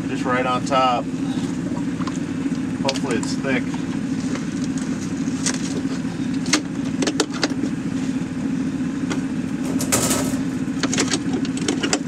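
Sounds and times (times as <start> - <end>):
metal scraping: 9.6 - 10.7.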